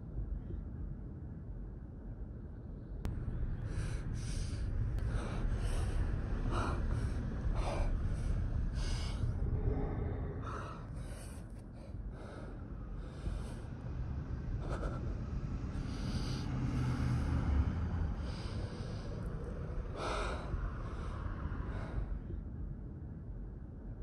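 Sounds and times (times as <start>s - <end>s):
steady low rumble: 0.0s - 24.0s
young man panting: 3.6s - 13.7s, 14.6s - 17.4s, 18.1s - 22.1s.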